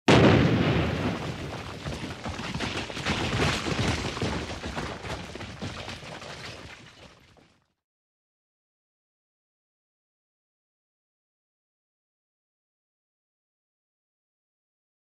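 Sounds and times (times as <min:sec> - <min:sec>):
rock debris clattering down: 0:00.1 - 0:07.7.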